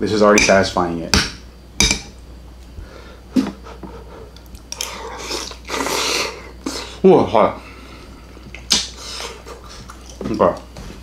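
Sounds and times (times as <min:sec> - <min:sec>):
slurping from a spoon: 0:04.7 - 0:07.0.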